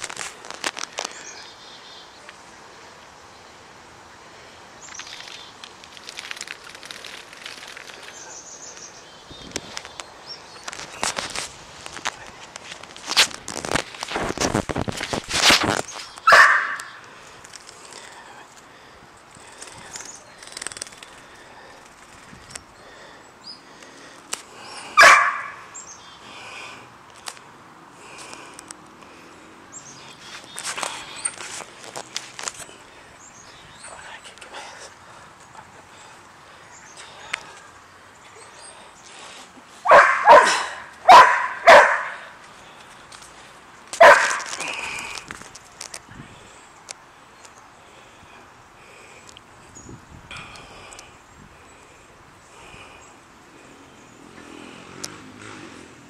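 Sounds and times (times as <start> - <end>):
dog barking: 16.3 - 16.9, 25.0 - 25.6, 39.8 - 42.3, 44.0 - 44.5.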